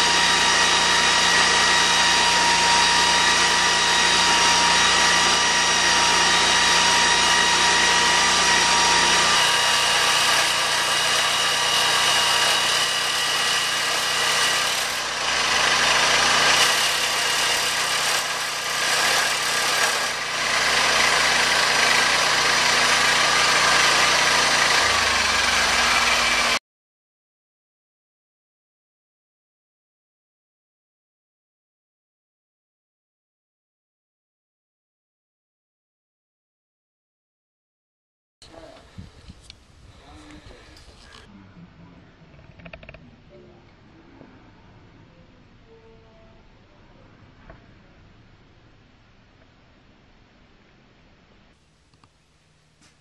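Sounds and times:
saw cutting log: 0.0 - 26.6
sawmill engine running: 0.0 - 26.6.

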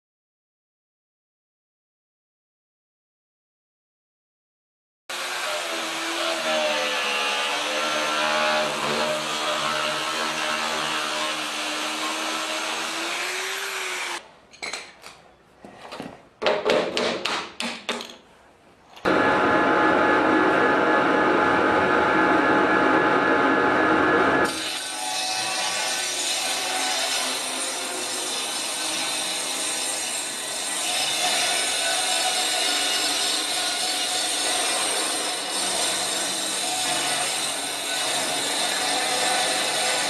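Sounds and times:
angle grinder cutting wood: 5.1 - 14.2, 24.4 - 40.0
circular saw cutting wood: 5.1 - 14.2, 24.4 - 40.0.

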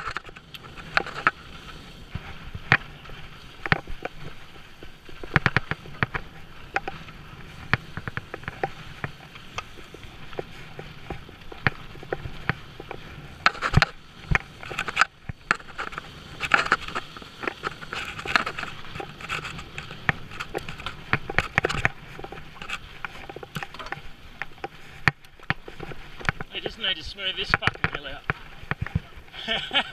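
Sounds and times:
bike rattling over bumps: 0.0 - 29.9
bike tyres rolling over dirt: 0.0 - 29.9.

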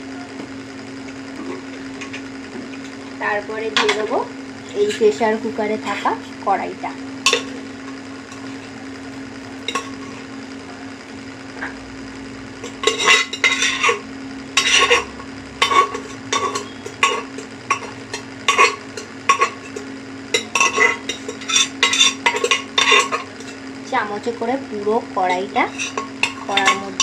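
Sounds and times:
steady low hum: 0.0 - 27.0
metal spoon scraping a pot: 3.7 - 6.3, 7.2 - 8.8, 9.6 - 10.3, 12.6 - 23.6, 25.3 - 27.0.

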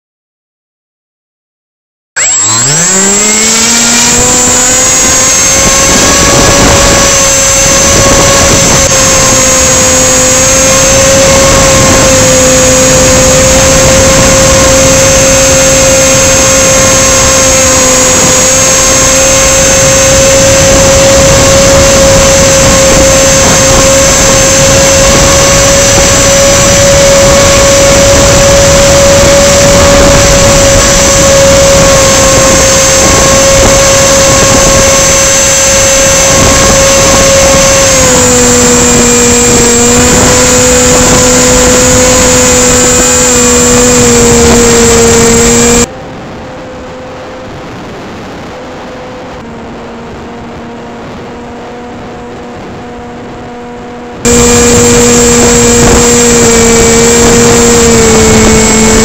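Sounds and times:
plane motor and propeller: 2.2 - 59.0
wind noise on microphone: 2.2 - 59.0.

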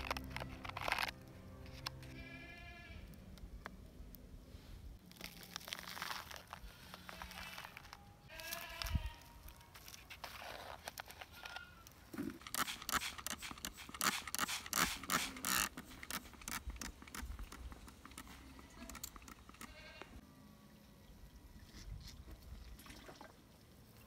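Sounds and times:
animal bleating call: 2.1 - 3.1, 6.6 - 9.4, 19.6 - 20.2
spray bottle spritzing: 12.4 - 17.2.

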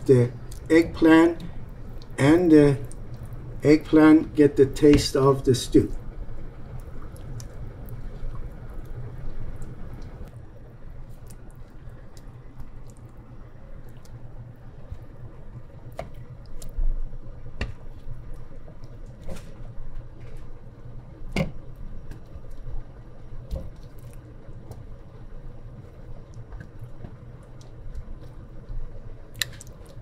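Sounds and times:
low steady hum: 0.0 - 30.0
soft squishes of tomatoes: 0.2 - 0.8, 1.4 - 2.2, 2.8 - 3.6, 5.9 - 20.7, 21.7 - 30.0.

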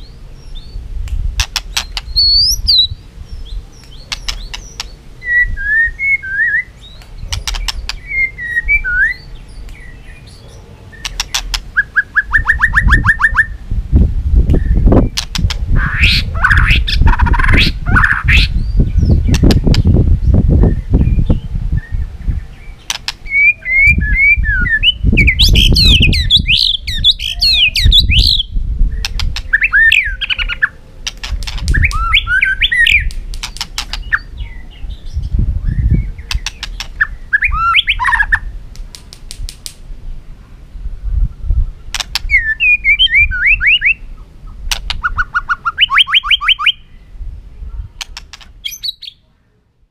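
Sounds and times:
bird singing whistled notes: 0.0 - 0.8, 1.7 - 13.6, 14.5 - 15.2, 15.8 - 30.8, 31.7 - 38.5, 41.2 - 44.3, 45.0 - 47.9, 48.6 - 49.2
sharp clicks: 1.0 - 2.2, 3.8 - 5.0, 7.0 - 8.0, 11.0 - 11.7, 14.5 - 15.6, 22.9 - 23.2, 29.0 - 29.5, 31.0 - 32.0, 33.0 - 34.2, 36.3 - 37.0, 38.7 - 39.8, 41.9 - 42.3, 44.7 - 45.0, 48.0 - 48.5.

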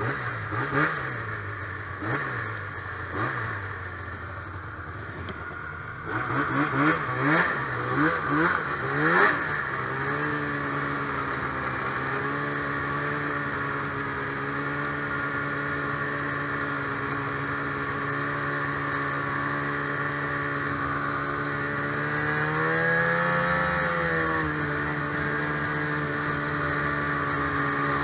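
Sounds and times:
snowmobile engine running: 0.0 - 28.0.

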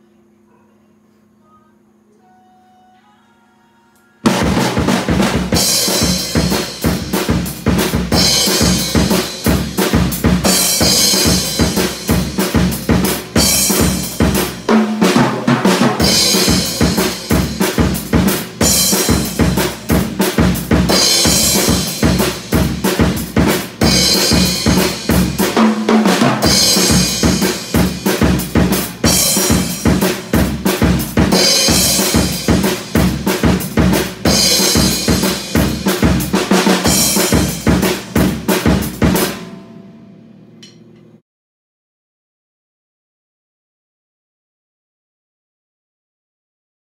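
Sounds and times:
drum kit playing pop groove: 4.2 - 39.8
crash cymbal ringing: 39.2 - 40.9.

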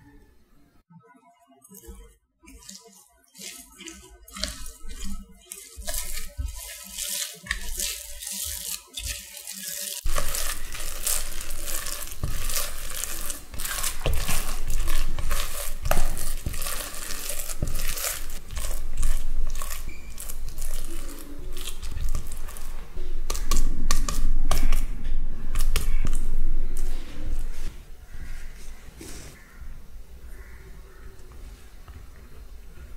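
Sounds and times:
spatula scraping in glass bowl: 1.7 - 22.7.

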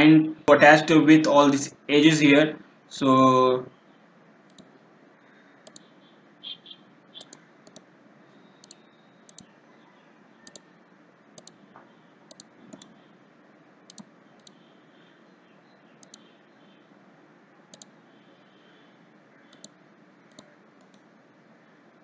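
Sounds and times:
computer mouse buttons clicking: 4.5 - 4.7, 5.6 - 5.9, 7.2 - 7.9, 8.6 - 9.5, 10.4 - 10.6, 11.4 - 11.6, 12.3 - 13.0, 13.9 - 14.6, 16.0 - 16.3, 19.5 - 21.1.

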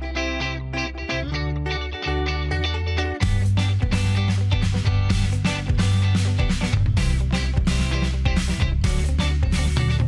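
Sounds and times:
guitar music: 0.0 - 10.0
heavy bass: 2.2 - 10.0.

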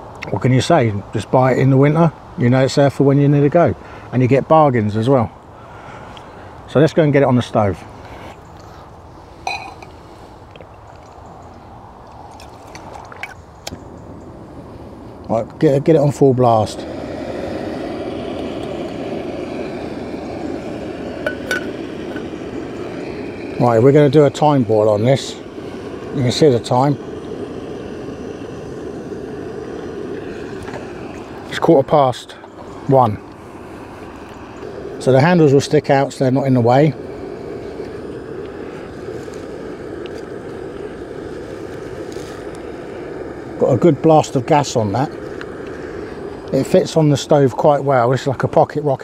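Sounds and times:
pot handles clinking: 9.5 - 9.9
gas stove burner hissing: 13.2 - 49.0.

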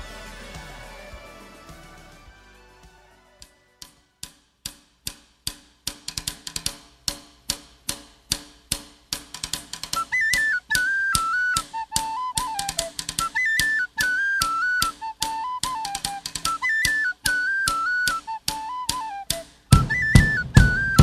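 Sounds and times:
steady drum beat: 0.0 - 3.1, 19.6 - 21.0
tin whistle melody: 0.0 - 4.1, 9.9 - 21.0.

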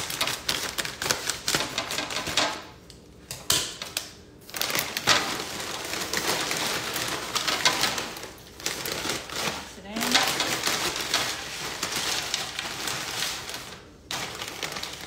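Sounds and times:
plastic bag crinkling: 0.0 - 2.8, 3.6 - 15.0
chips rattling onto wooden tray: 4.5 - 15.0.

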